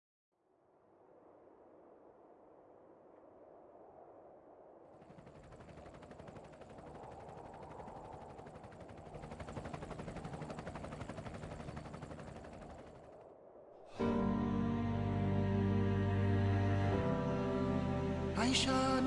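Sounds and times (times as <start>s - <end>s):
motor running with fast pulsing: 5.0s - 13.2s.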